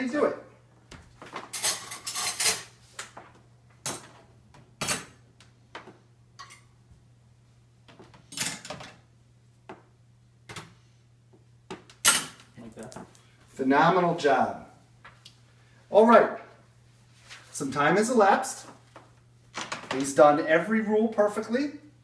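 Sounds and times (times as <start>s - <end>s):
cutlery clinking into basket: 1.5s - 2.7s.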